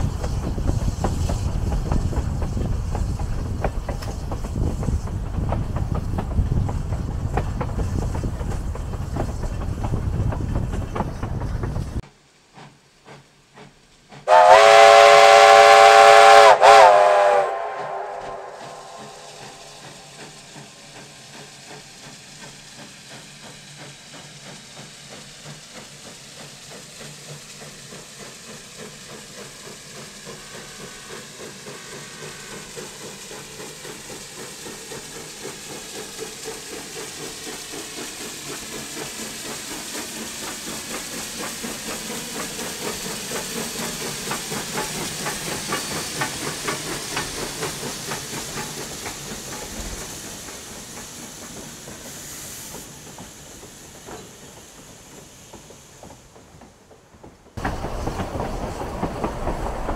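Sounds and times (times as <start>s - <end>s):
steam locomotive exhaust beats: 0.0s - 59.9s
steam locomotive whistle: 14.2s - 20.0s.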